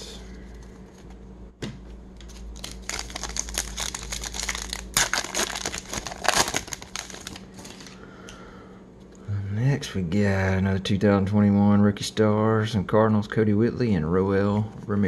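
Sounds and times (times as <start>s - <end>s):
wrapper crinkling and ripping: 2.3s - 8.0s.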